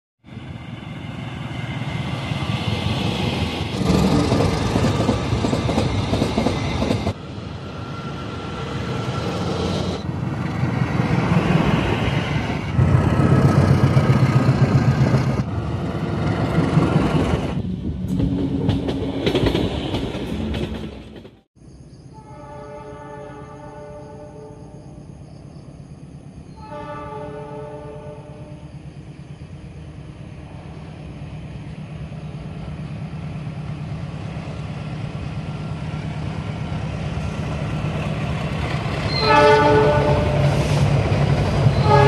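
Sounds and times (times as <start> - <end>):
diesel locomotive running: 0.2 - 21.4, 27.6 - 42.0
train wheels clattering over rails: 2.6 - 7.2, 12.7 - 21.5.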